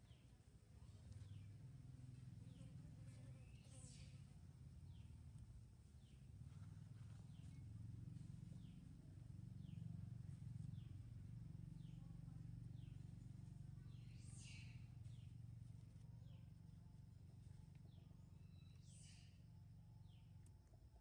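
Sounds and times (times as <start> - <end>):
steady low hum: 0.0 - 21.0
bird chirps: 13.8 - 15.3, 17.9 - 20.3.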